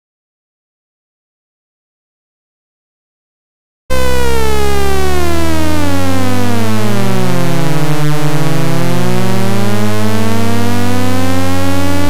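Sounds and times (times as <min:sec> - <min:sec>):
gliding electronic tones: 0:03.9 - 0:12.0
steady low hum: 0:03.9 - 0:12.0.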